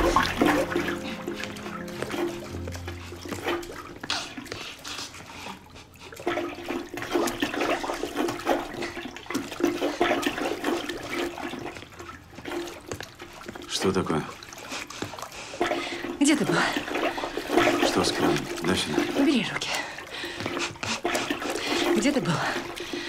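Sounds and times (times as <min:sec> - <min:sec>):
steady low tone: 0:00.0 - 0:04.5
water gushing from tap: 0:00.0 - 0:23.0.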